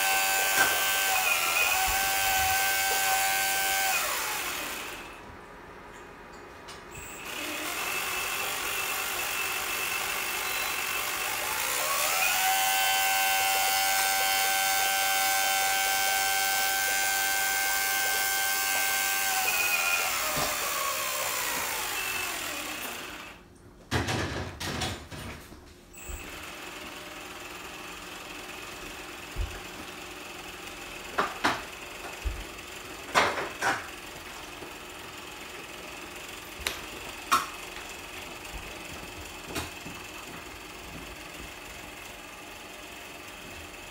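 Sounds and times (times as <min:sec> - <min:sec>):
electric motor whirring: 0:00.0 - 0:05.2, 0:07.0 - 0:23.4.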